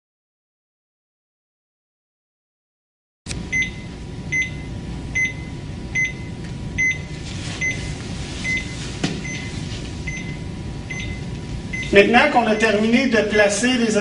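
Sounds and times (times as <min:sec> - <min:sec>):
steady room hum: 0:03.3 - 0:14.0
heart monitor beeping: 0:03.5 - 0:12.9.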